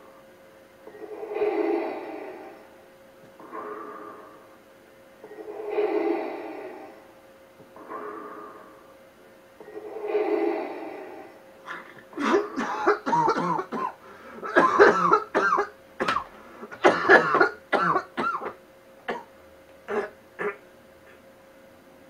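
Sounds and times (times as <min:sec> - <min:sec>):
breath through respirator mask: 0:01.0 - 0:02.7, 0:03.4 - 0:04.6, 0:05.3 - 0:07.1, 0:07.8 - 0:08.9
muffled coughing: 0:11.6 - 0:19.3, 0:19.9 - 0:21.2.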